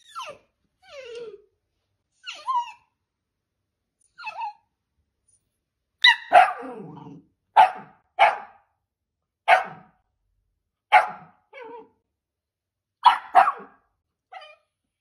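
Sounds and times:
dog whining: 0.0 - 1.5, 2.2 - 2.9, 4.0 - 4.7
dog barking: 6.0 - 6.9, 7.5 - 8.7, 9.4 - 10.0, 10.9 - 11.5, 13.0 - 13.8
dog growling: 6.6 - 7.3.

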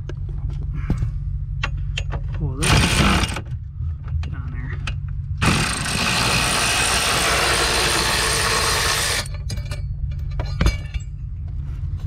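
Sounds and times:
power ratchet running: 2.6 - 3.5, 5.4 - 9.3.

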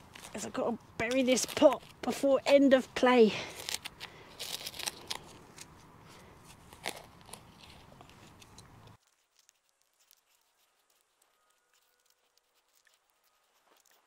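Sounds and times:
hand tool scraping soil: 0.0 - 5.7.

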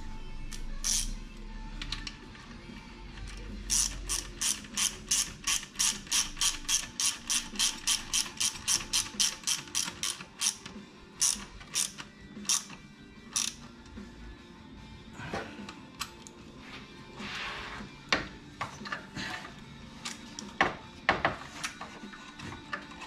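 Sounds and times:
ratchet wrench clicking: 0.5 - 1.2, 3.7 - 10.6, 11.2 - 13.7.

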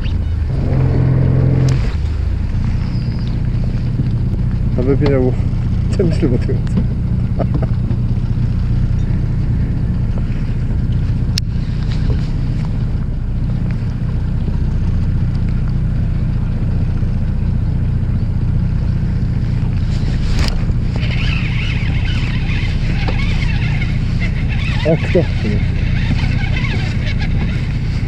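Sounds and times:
boat engine idling: 0.0 - 28.0
scratchy rustle: 19.7 - 28.0.

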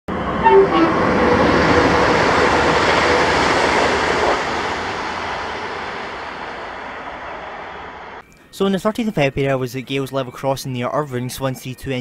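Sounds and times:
train passing: 0.1 - 8.9
short tones: 0.4 - 1.5.

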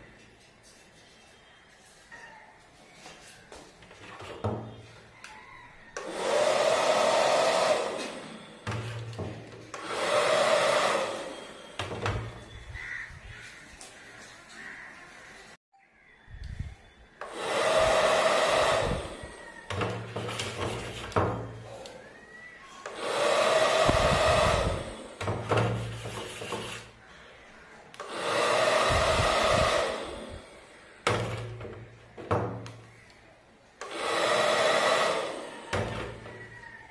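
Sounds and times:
bubble gun fan whirring: 6.0 - 12.5, 17.2 - 27.0, 28.0 - 32.0.

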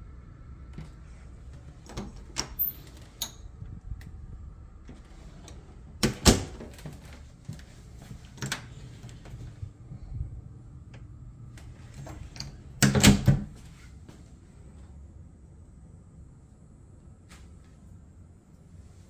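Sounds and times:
closet doors clicking and knocking: 0.8 - 3.4, 4.9 - 7.2, 12.0 - 13.6.

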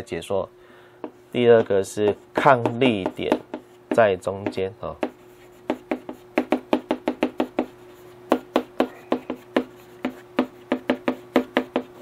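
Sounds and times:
pen tapping on hard surface: 2.1 - 7.7, 8.3 - 12.0.

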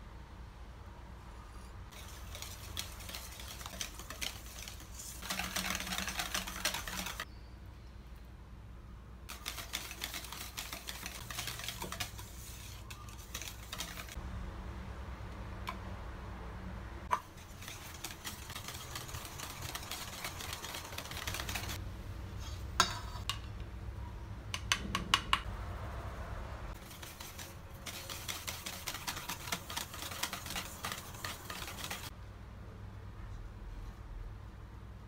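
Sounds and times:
whisk ticking against metal bowl: 1.9 - 7.2, 9.3 - 14.2, 17.1 - 21.8, 26.8 - 32.1.

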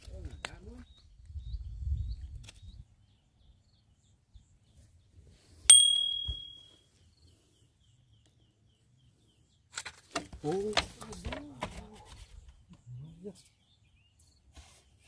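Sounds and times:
small bell ding: 5.7 - 6.8.

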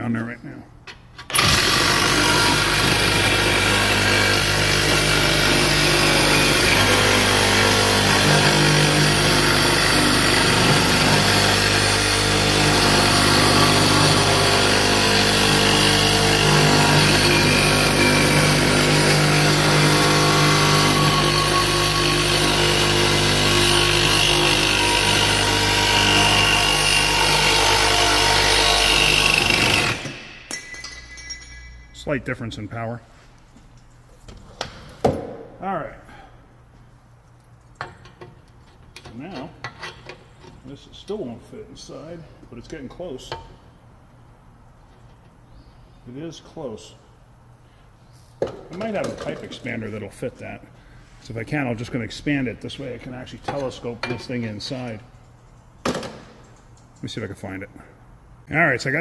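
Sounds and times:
reciprocating saw cutting metal: 1.4 - 30.4.

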